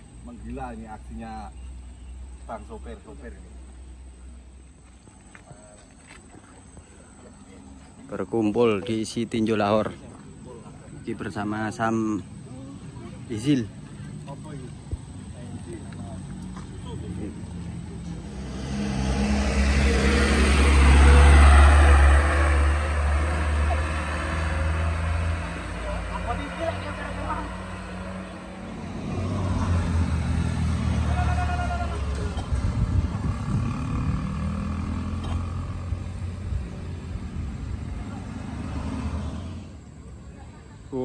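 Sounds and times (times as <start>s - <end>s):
diesel truck driving past: 15.2s - 40.9s
motorcycle engine passing: 16.0s - 40.7s.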